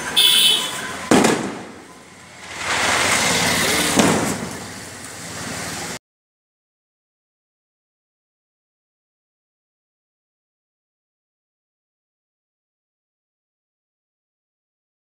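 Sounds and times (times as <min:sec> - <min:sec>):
firecracker bangs: 0:00.2 - 0:04.9
crackling hiss: 0:01.2 - 0:06.0.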